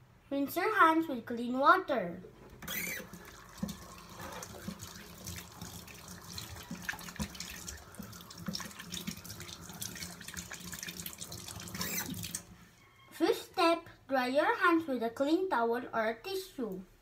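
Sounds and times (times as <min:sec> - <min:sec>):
faucet water splashing into sink: 0:02.6 - 0:12.6.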